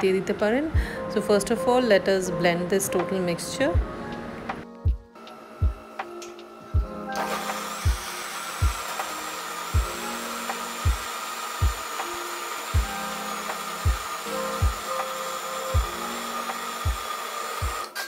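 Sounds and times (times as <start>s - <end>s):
bass beat of background music: 3.8s - 5.8s, 6.8s - 7.0s, 7.9s - 8.8s, 9.8s - 11.8s, 12.8s - 13.0s, 13.9s - 15.1s, 15.8s - 16.1s
mixer grinder motor whining: 5.2s - 18.0s.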